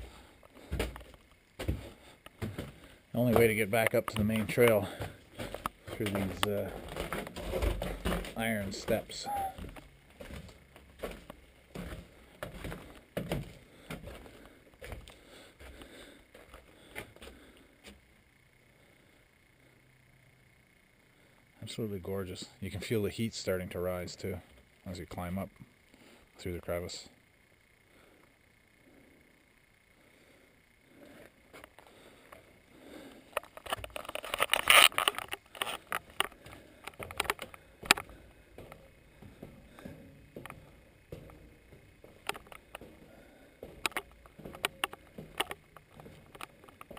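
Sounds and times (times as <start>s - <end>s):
footsteps on iron stairs: 0.0s - 15.8s, 36.4s - 46.9s.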